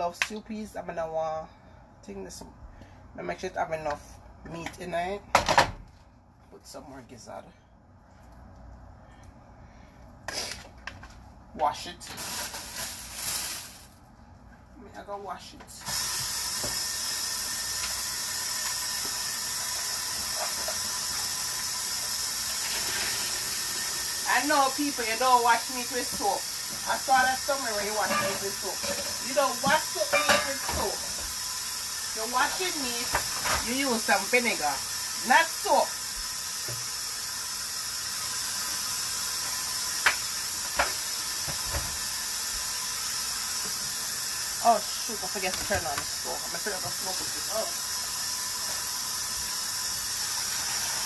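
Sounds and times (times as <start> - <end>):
tap water running into sink: 15.9 - 51.0
steady high hiss: 16.2 - 51.0.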